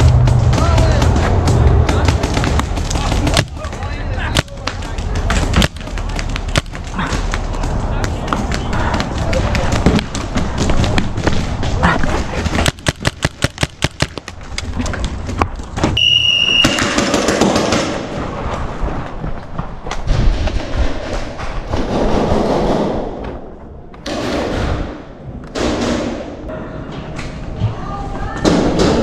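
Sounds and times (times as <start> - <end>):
paintball marker firing rapidly: 12.4 - 14.4.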